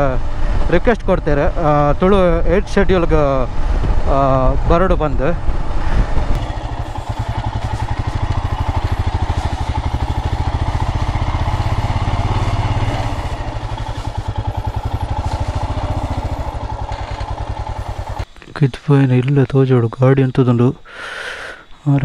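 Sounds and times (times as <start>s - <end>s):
motorcycle engine running slowly: 6.2s - 18.4s.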